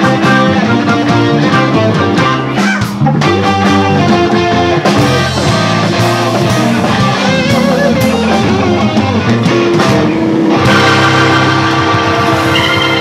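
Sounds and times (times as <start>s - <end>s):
bass guitar: 0.0s - 13.0s
drum kit: 0.0s - 13.0s
electric guitars: 0.0s - 13.0s.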